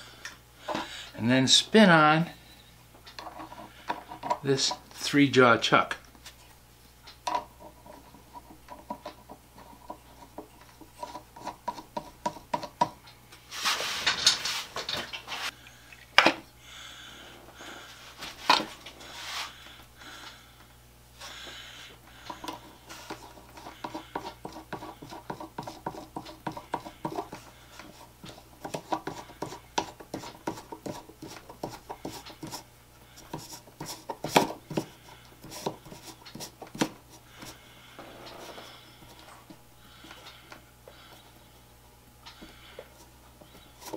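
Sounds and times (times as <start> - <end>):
rustling scrape: 13.4 - 15.5, 17.8 - 19.6.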